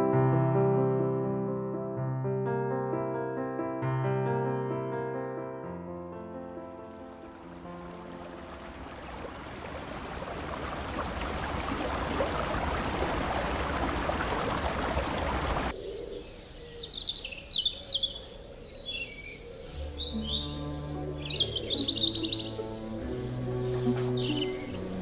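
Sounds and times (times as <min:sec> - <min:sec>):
stream water over stones: 0:06.8 - 0:15.7
birds chirping: 0:07.2 - 0:25.0.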